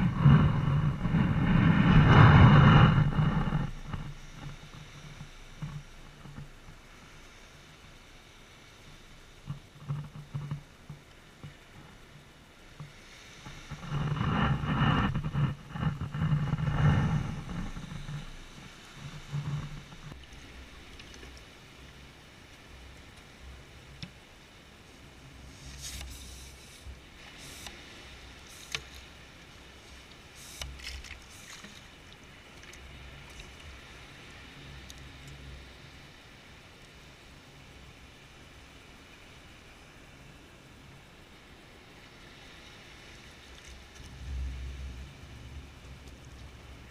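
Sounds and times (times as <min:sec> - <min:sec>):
pump sucking sand and water: 0:00.0 - 0:07.4, 0:25.4 - 0:35.5
wind rumbling on microphone: 0:00.0 - 0:46.9.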